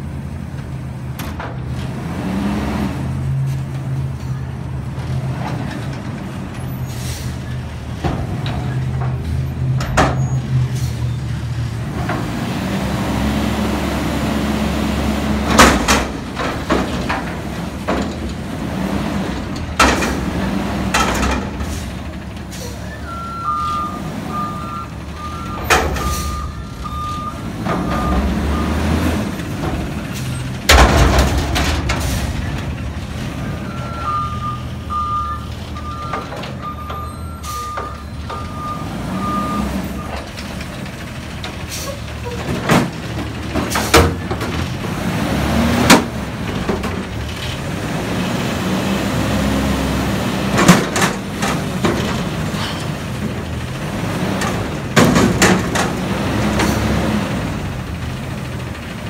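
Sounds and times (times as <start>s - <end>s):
diesel engine revving: 0.0s - 59.0s
metal dumpster bangs: 15.3s - 18.5s, 25.0s - 34.9s
reversing beeps: 22.8s - 28.8s, 33.6s - 40.2s.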